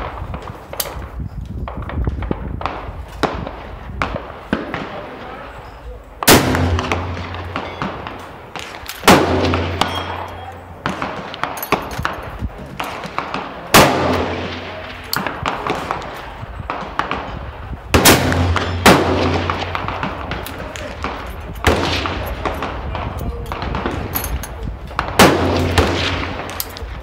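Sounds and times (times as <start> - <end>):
rifle shots with echo: 0.0 - 5.6, 6.2 - 27.0
loud gunshots: 6.2 - 24.1, 25.0 - 27.0.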